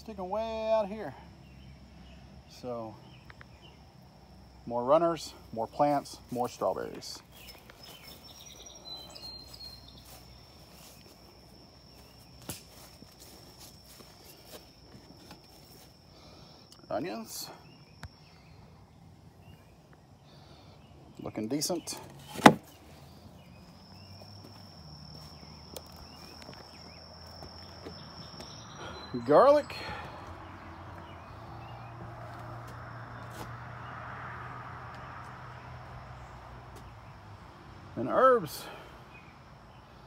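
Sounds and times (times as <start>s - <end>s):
insects chirping: 0.0s - 40.0s
high-pitched insect trill: 23.4s - 29.7s.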